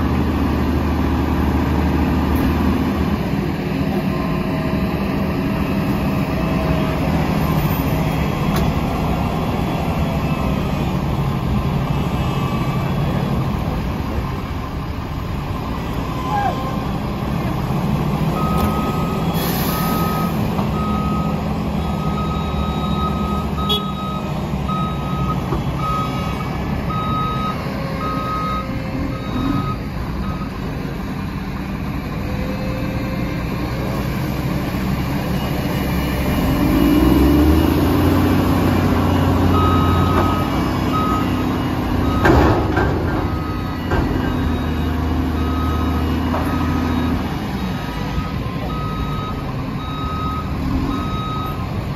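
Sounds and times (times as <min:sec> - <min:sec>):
diesel engine running: 0:00.0 - 0:51.9
reversing alarm beeping: 0:18.3 - 0:30.8, 0:35.2 - 0:51.8.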